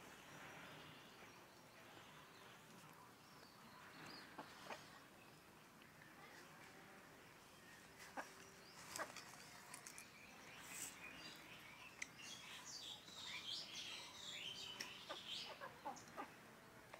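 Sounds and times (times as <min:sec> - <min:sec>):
chickens pecking on concrete: 0:08.0 - 0:10.2.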